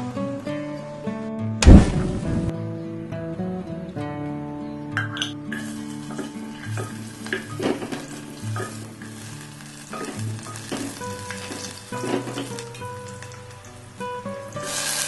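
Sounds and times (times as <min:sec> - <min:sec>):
garlic sizzling in hot oil: 0:05.5 - 0:15.0
wooden spatula scraping a pot: 0:05.6 - 0:12.7.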